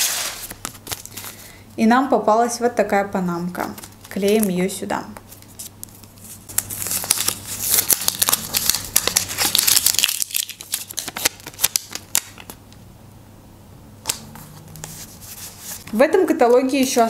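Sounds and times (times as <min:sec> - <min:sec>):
sticker paper crinkling: 0:03.6 - 0:12.6, 0:14.1 - 0:17.0.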